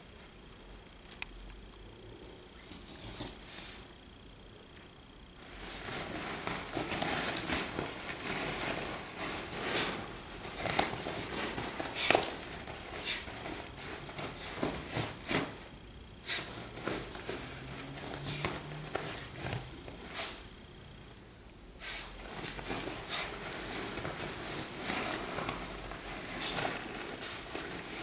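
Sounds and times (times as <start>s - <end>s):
dog pawing vinyl beanbag: 5.4s - 15.7s, 16.3s - 20.4s, 21.9s - 28.0s.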